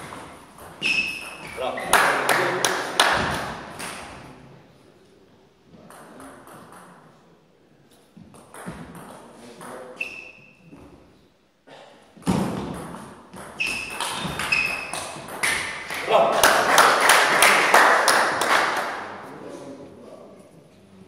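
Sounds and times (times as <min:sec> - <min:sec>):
shoes squeaking on floor: 0:00.0 - 0:02.0, 0:09.9 - 0:11.3, 0:12.2 - 0:15.9.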